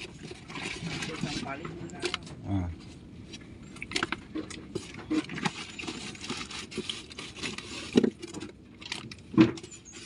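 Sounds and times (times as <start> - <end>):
scraping against styrofoam cooler: 4.8 - 8.5, 9.5 - 10.0.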